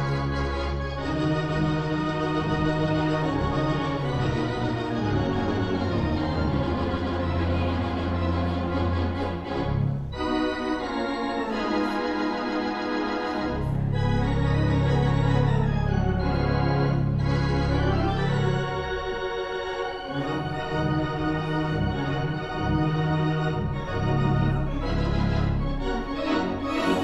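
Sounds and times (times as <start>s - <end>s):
pipe organ chords: 0.0s - 27.0s
deep pedal bass line: 13.5s - 18.9s.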